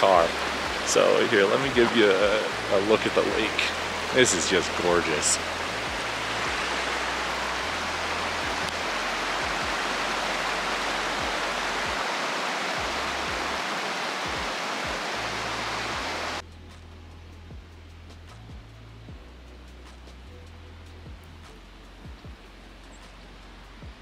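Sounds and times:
running water hiss: 0:00.0 - 0:16.4
soft background music: 0:00.0 - 0:24.0.

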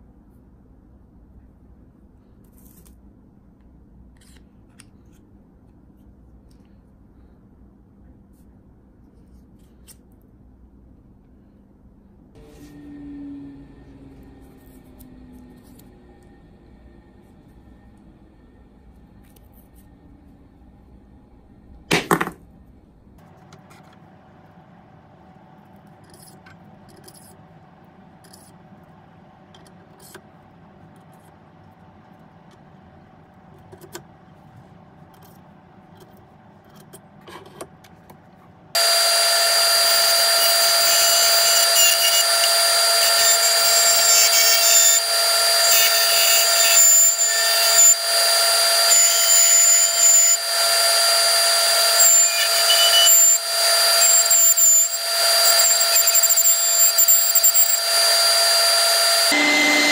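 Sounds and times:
low hum: 0:10.6 - 0:29.6
lathe whining: 0:38.8 - 0:59.9
tool scraping resin: 0:39.2 - 0:59.4.

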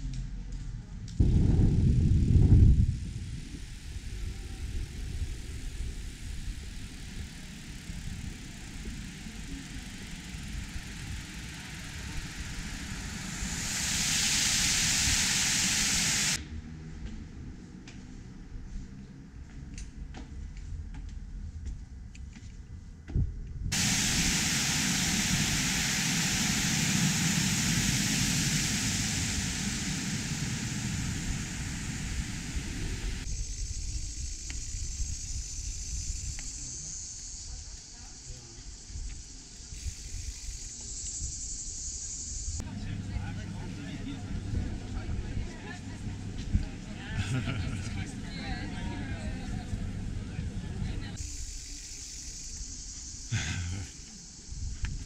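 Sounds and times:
low rumbling background noise: 0:00.0 - 0:36.3, 0:42.6 - 0:51.3
water spilling from fountain: 0:03.5 - 0:16.4, 0:23.7 - 0:33.3.

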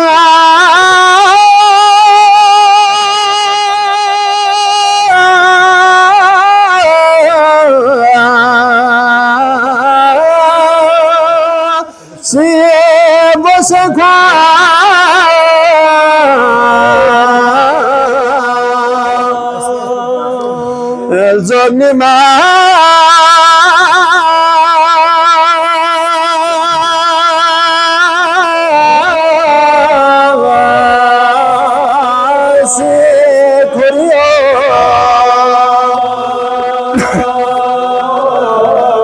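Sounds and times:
man singing unaccompanied: 0:00.0 - 0:39.0.

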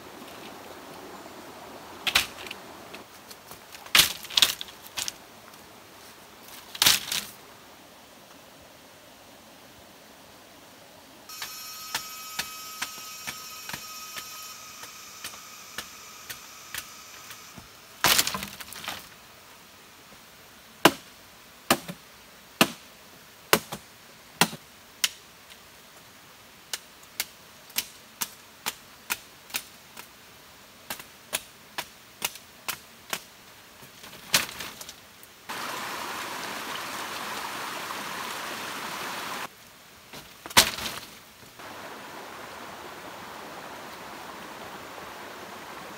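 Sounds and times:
steady hiss: 0:00.0 - 0:45.9
machete chopping bamboo: 0:20.8 - 0:21.0, 0:21.7 - 0:22.0, 0:22.6 - 0:22.8, 0:23.5 - 0:23.8.

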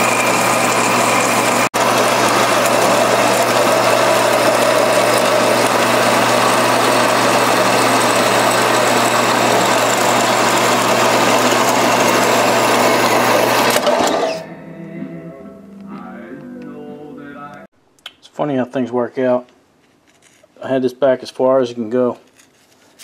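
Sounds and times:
bandsaw motor hum: 0:00.0 - 0:14.4.

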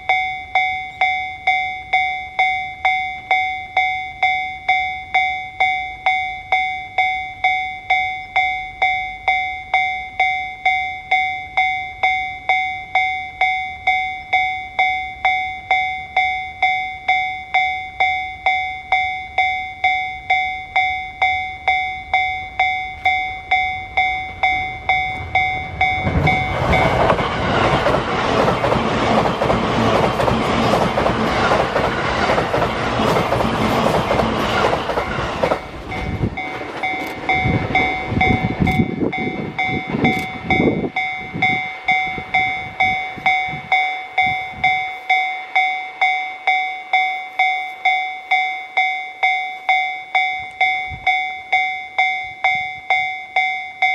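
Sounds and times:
level-crossing warning bell ringing: 0:00.0 - 0:53.9
train rushing past: 0:20.8 - 0:47.0
train wheels clickety-clack: 0:25.2 - 0:44.8.

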